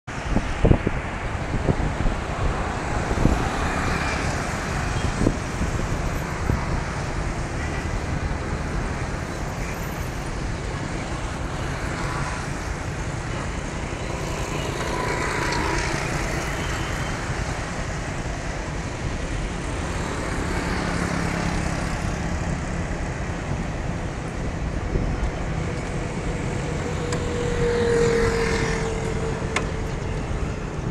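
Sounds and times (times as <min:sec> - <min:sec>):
scooters and cars passing: 0:00.1 - 0:30.9.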